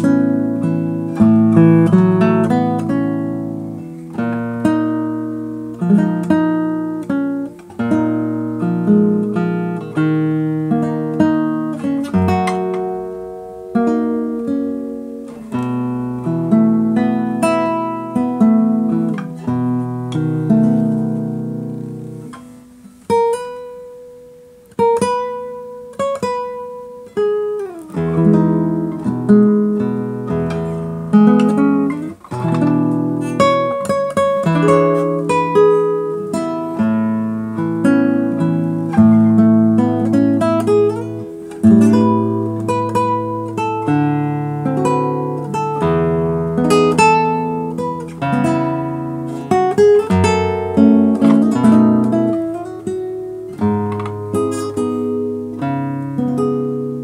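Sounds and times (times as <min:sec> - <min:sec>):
classical guitar fingerpicked: 0:00.0 - 0:57.0.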